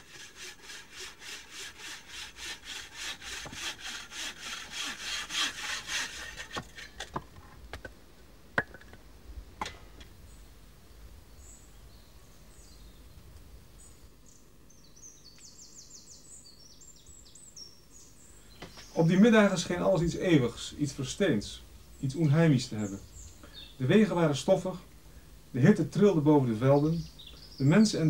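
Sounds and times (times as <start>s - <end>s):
saw cutting wood: 0.0s - 7.1s.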